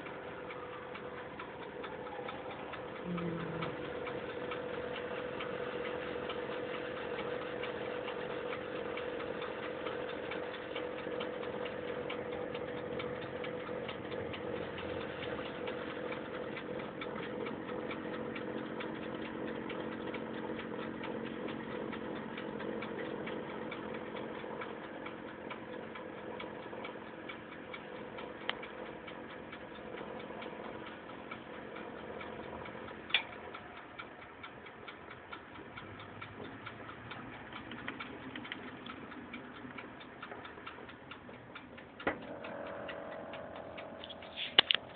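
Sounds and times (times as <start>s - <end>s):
toaster oven humming and ticking: 0.0s - 44.9s
sharp clicks: 26.3s - 44.9s.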